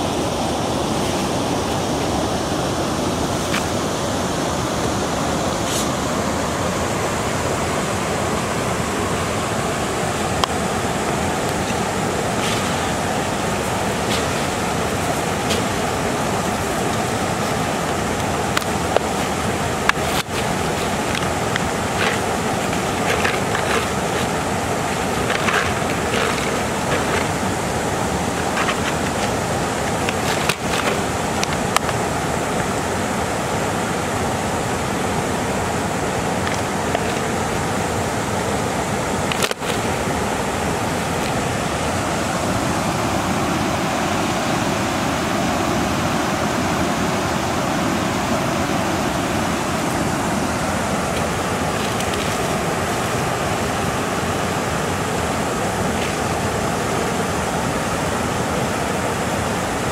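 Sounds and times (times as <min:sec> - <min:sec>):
river water rushing over weir: 0:00.0 - 0:59.9
handling clicks and rattles: 0:16.4 - 0:27.7, 0:28.3 - 0:32.0, 0:36.4 - 0:37.3, 0:39.3 - 0:40.0, 0:51.2 - 0:53.1.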